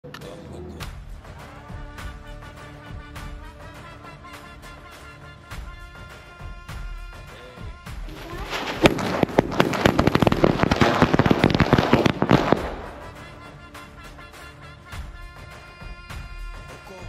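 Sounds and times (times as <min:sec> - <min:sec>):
background music: 0:00.0 - 0:17.0
firecracker bangs and cracks: 0:04.5 - 0:15.6.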